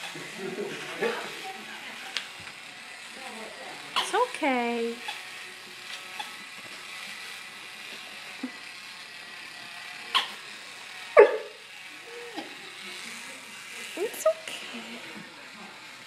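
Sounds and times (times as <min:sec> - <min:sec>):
puppy barking: 0:11.2 - 0:11.6.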